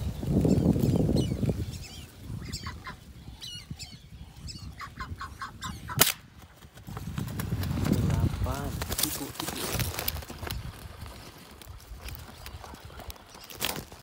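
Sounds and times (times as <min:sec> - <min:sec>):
ducks calling: 0:00.5 - 0:06.1
sharp crack: 0:05.9 - 0:06.4.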